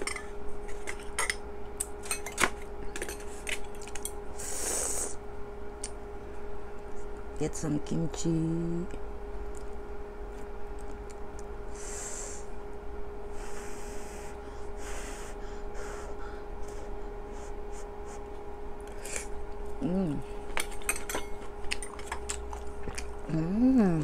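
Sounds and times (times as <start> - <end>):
steady low hum: 0.0 - 24.0
person blowing on hot food: 4.4 - 5.2, 11.7 - 12.6, 13.3 - 18.3
person humming mm: 19.1 - 20.4, 23.3 - 24.0
chewing: 21.5 - 23.3.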